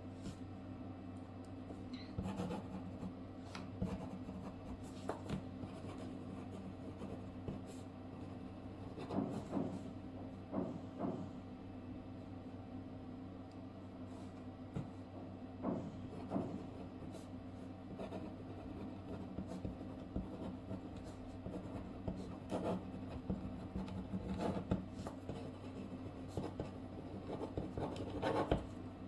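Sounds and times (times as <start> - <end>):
pen scratching on paper: 2.2 - 7.8, 17.9 - 28.7.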